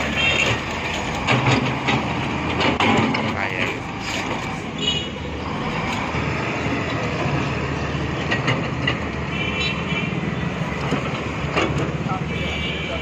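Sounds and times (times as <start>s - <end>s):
heavy diesel engines rumbling: 0.0s - 13.0s
sharp metallic knocks: 1.2s - 3.8s.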